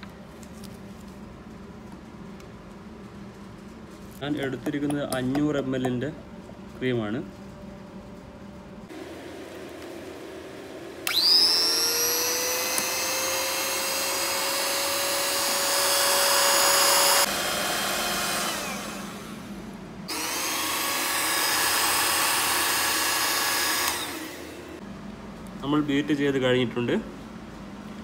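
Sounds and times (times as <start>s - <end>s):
electric mixer whirring: 9.0s - 24.8s.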